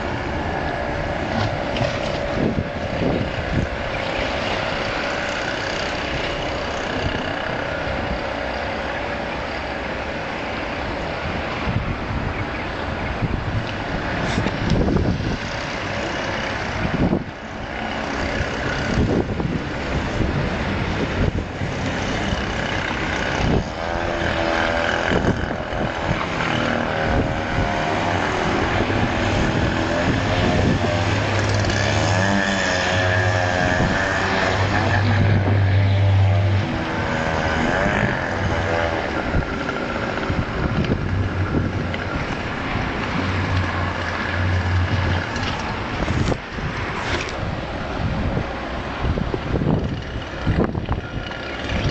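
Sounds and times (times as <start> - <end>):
wind buffeting microphone: 0.0 - 51.9.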